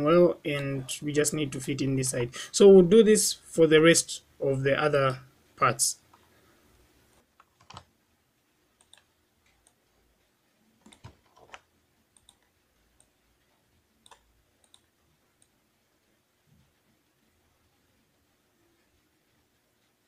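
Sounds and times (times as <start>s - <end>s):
mouse and keyboard clicks: 7.4s - 7.9s, 10.8s - 13.1s, 14.0s - 14.9s.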